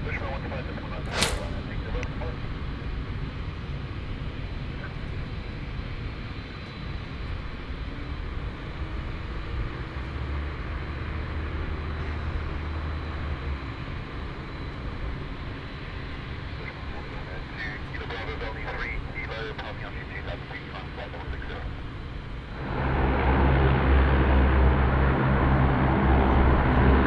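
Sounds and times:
engine low rumble: 0.0 - 27.0.

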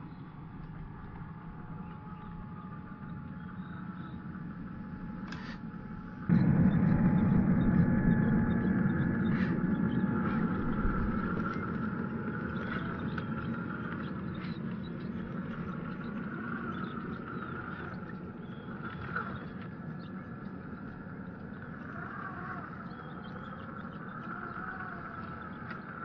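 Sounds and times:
rc car motor and gear whine: 6.4 - 26.0.

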